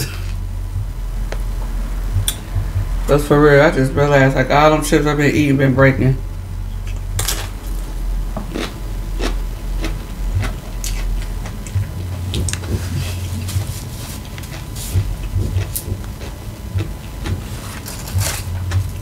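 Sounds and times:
steady low hum: 0:00.0 - 0:19.0
crunchy chewing: 0:06.8 - 0:19.0.

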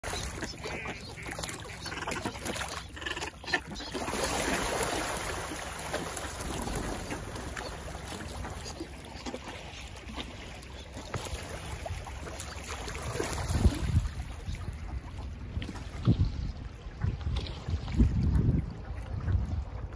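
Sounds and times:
water sloshing and splashing: 0:00.0 - 0:19.9
wind buffeting microphone: 0:13.4 - 0:19.9.

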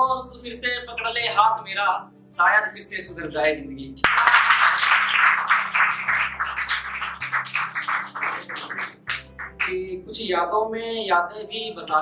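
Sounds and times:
soft background music: 0:00.0 - 0:12.0
audience clapping: 0:04.0 - 0:09.7.

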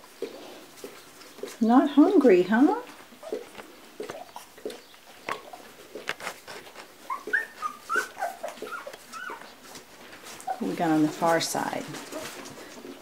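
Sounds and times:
puppies squeaking and whimpering: 0:03.1 - 0:11.3, 0:11.9 - 0:13.0.

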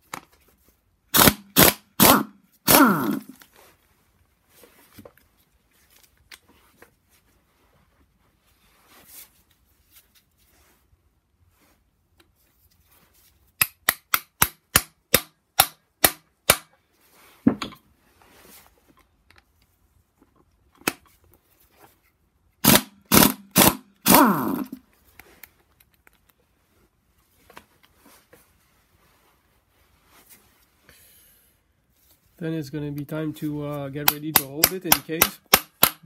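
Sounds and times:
impact wrench bursts: 0:01.1 - 0:03.4, 0:22.6 - 0:24.8.

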